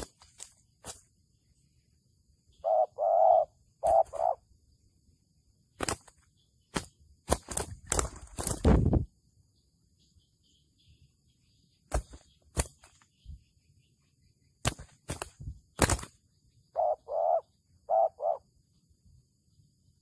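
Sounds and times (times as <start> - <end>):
dove wing slaps: 0.0 - 1.1, 5.8 - 9.0, 11.9 - 13.1, 14.6 - 16.2
dove cooing: 2.6 - 4.4, 16.7 - 18.5.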